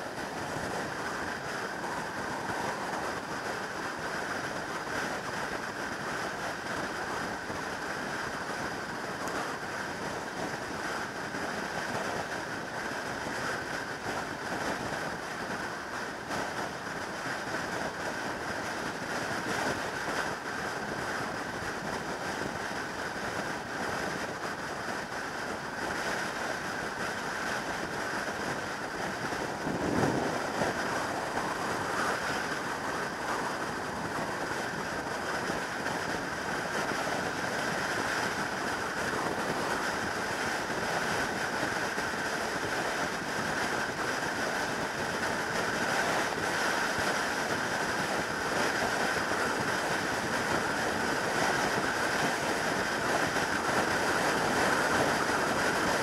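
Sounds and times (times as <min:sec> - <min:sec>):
wind rush: 0:00.0 - 0:07.7, 0:15.1 - 0:43.0.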